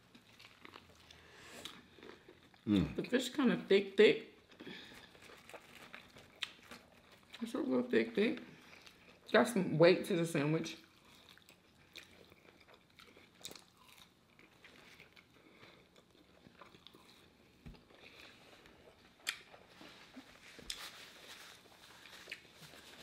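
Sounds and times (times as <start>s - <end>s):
biting and chewing food: 0.0s - 3.0s, 4.4s - 7.8s, 10.8s - 23.0s
paper napkins rustling: 19.8s - 23.0s.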